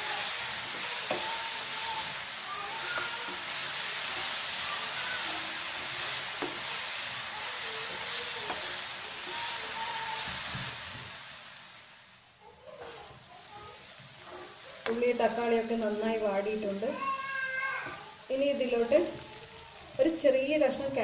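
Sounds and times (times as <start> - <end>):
spatula scraping pan: 0.0 - 11.1
vegetables sizzling in frying pan: 0.0 - 21.0.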